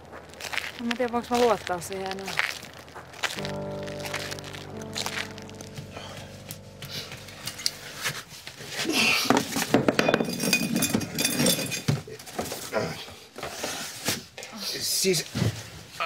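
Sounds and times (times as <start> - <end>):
glass bottles clinking: 9.3 - 12.0.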